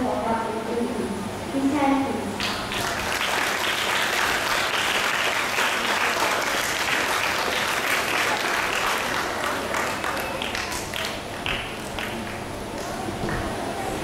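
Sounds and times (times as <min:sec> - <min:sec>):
audience applauding: 0:02.4 - 0:13.4.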